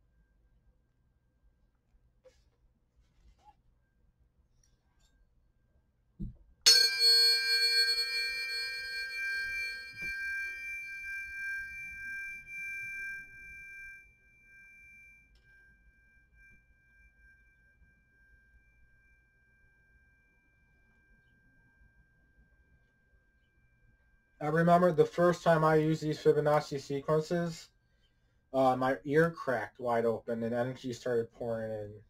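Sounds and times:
tuning forks ringing: 0:06.7 - 0:25.7.

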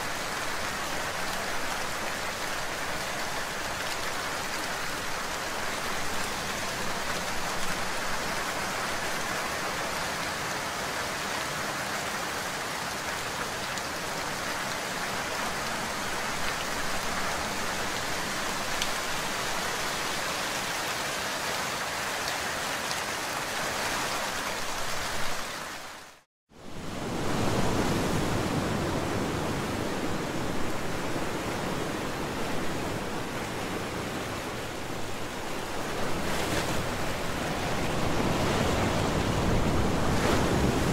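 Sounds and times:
rain on leaves: 0:00.0 - 0:26.3
sea waves washing: 0:26.6 - 0:40.9.

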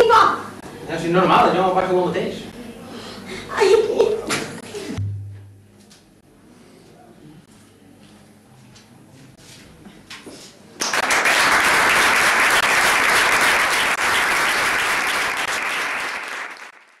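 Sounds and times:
audience applause: 0:10.8 - 0:17.0.

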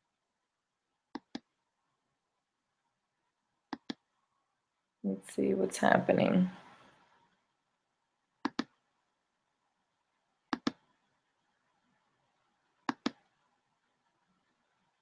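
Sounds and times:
computer mouse double-clicks: 0:01.1 - 0:01.5, 0:03.7 - 0:04.0, 0:08.4 - 0:08.7, 0:10.5 - 0:10.8, 0:12.8 - 0:13.2.

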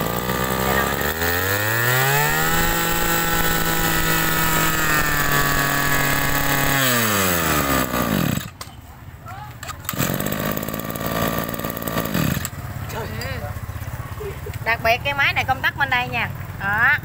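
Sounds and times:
brush cutter engine revving: 0:00.0 - 0:08.6, 0:09.6 - 0:13.2.

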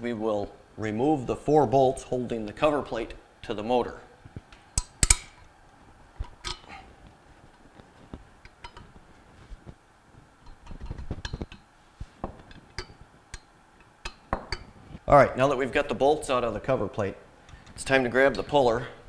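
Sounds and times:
metal wrench clinking: 0:06.3 - 0:06.8, 0:12.8 - 0:14.8.

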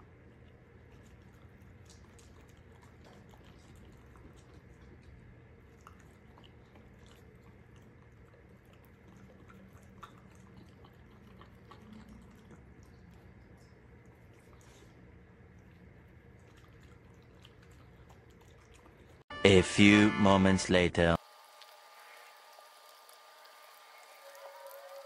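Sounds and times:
dog chewing leafy greens: 0:00.0 - 0:19.2.

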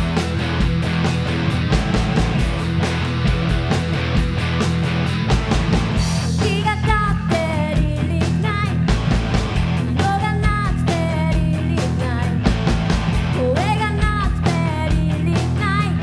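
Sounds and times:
rock band playing: 0:00.0 - 0:16.0
woman singing lead vocal: 0:06.3 - 0:08.8, 0:09.9 - 0:12.4, 0:13.4 - 0:16.0.

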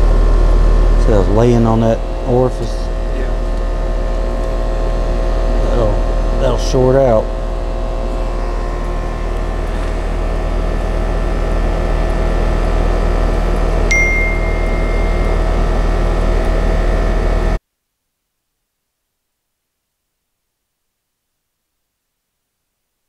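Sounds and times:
air conditioning unit humming: 0:00.0 - 0:17.6
short high beep: 0:13.9 - 0:15.7.

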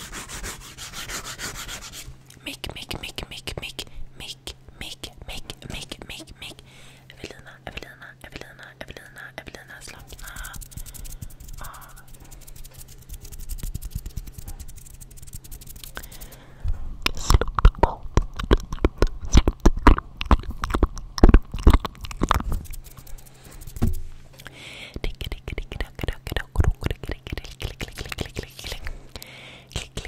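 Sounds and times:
mouth clicks and pops: 0:17.0 - 0:23.0, 0:25.0 - 0:28.9.

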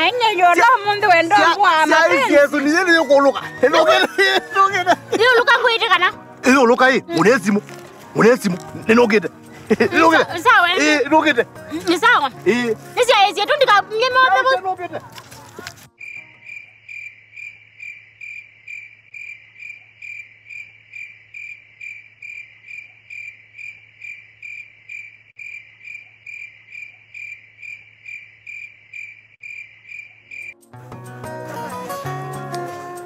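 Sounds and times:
cricket chirping: 0:16.0 - 0:30.7.

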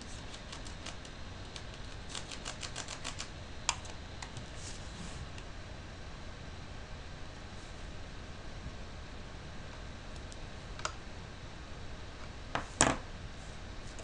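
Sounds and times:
low steady hum: 0:00.0 - 0:14.0
keyboard keys clicking: 0:00.3 - 0:04.4.

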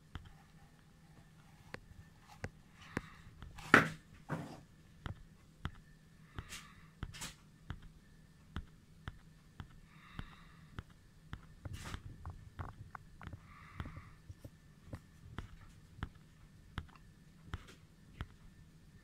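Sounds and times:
faint regular ticks: 0:05.0 - 0:18.6.

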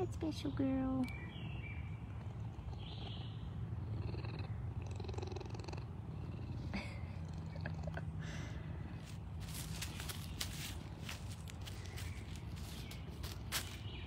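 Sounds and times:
cat purring: 0:02.4 - 0:08.0
faint rustles: 0:08.8 - 0:14.0.

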